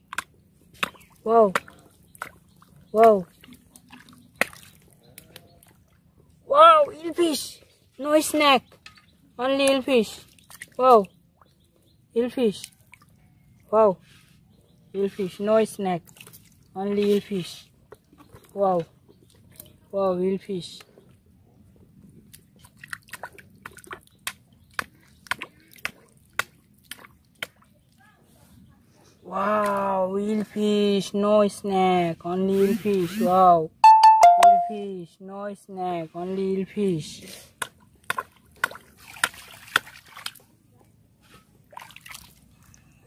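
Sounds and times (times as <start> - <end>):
hands squelching in wet mud: 0.0 - 6.0, 9.7 - 10.8, 16.0 - 19.8, 22.1 - 28.0, 37.2 - 40.5, 41.4 - 43.0
water sloshing: 0.0 - 6.4, 8.8 - 13.8, 15.0 - 19.9, 20.8 - 28.0, 37.5 - 40.7, 41.3 - 43.0.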